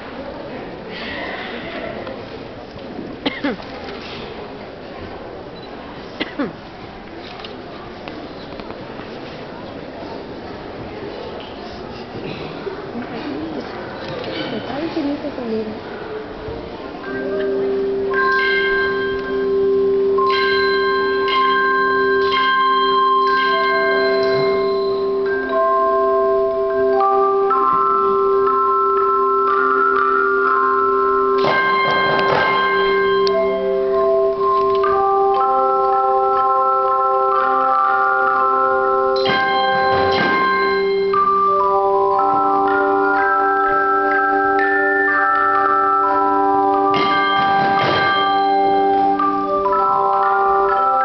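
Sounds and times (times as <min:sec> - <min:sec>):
handchimes playing slow melody: 0:17.0 - 0:51.0.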